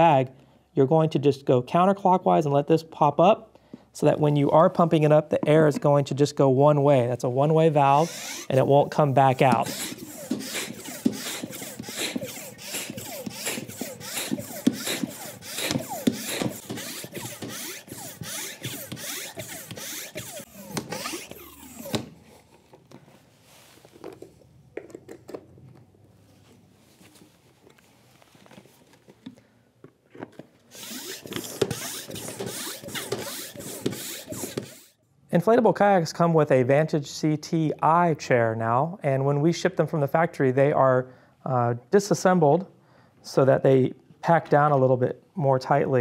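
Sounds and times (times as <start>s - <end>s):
hand pump rushing air: 7.6s - 22.4s, 30.7s - 35.0s.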